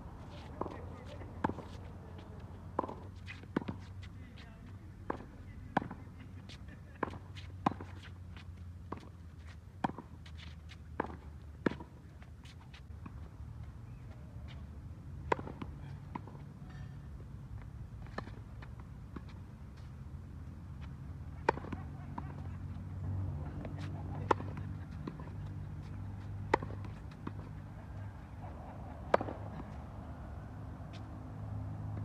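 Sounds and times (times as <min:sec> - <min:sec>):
tennis racket hitting ball: 0:00.3 - 0:09.1, 0:15.2 - 0:17.0, 0:21.3 - 0:22.4, 0:23.6 - 0:27.8, 0:28.4 - 0:29.8.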